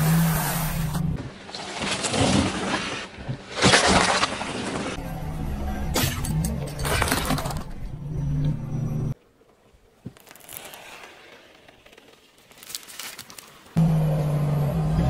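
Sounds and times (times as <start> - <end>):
low hum: 5.0 - 9.2
eggshells cracking under tyre: 11.8 - 13.8.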